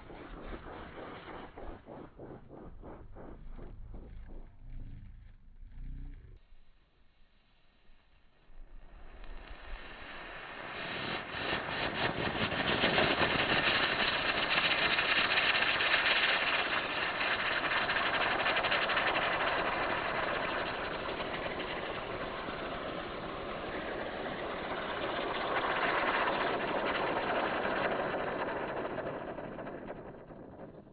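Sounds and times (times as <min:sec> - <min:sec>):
firework crackling: 0:08.6 - 0:30.5
firework hissing sparks: 0:08.8 - 0:26.4.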